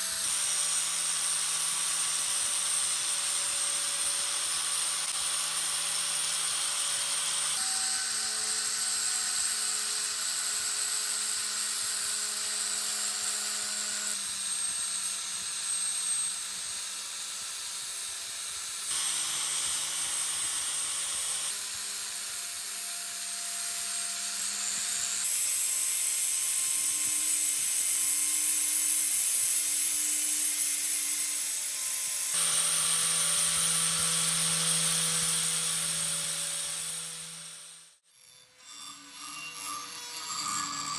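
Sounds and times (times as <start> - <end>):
sanding disc grinding metal: 32.3 - 40.9.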